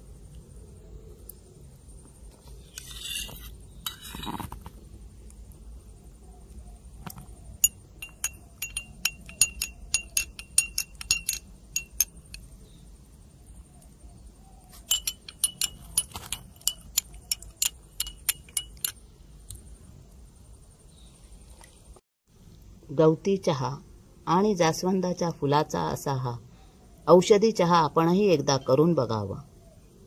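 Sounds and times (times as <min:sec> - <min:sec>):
spoon clinking against glass: 0:07.6 - 0:12.4, 0:14.8 - 0:19.0.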